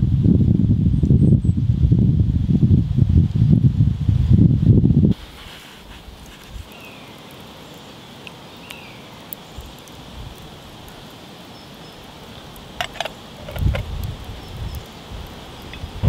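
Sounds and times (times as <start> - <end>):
quiet outdoor background: 0.0 - 16.0.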